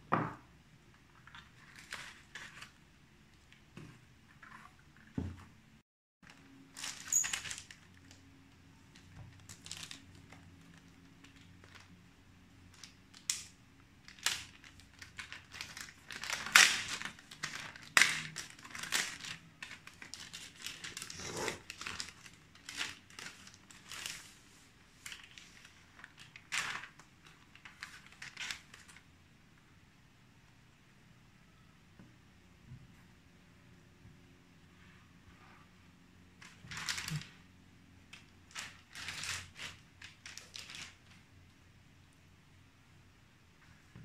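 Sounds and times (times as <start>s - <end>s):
plastic bag crinkling: 6.2s - 12.0s, 12.6s - 29.0s, 36.4s - 37.4s, 38.1s - 41.2s.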